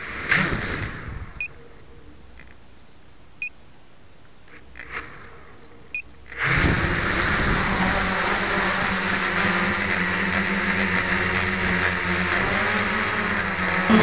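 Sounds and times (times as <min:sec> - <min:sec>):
drone propellers whirring: 0:04.6 - 0:14.0.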